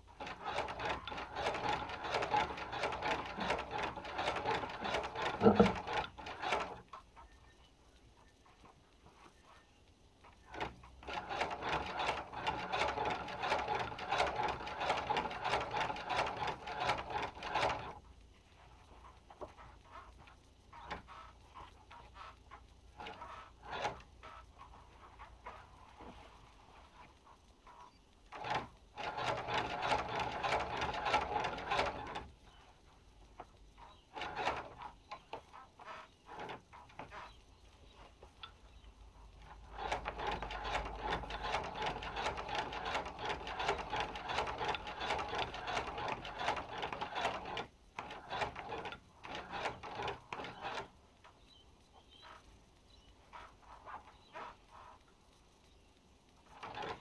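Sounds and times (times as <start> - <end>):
sewing machine clicking and clattering: 0.0 - 7.0, 10.2 - 18.1, 18.9 - 25.6, 28.3 - 32.6, 33.2 - 51.4, 56.4 - 57.0.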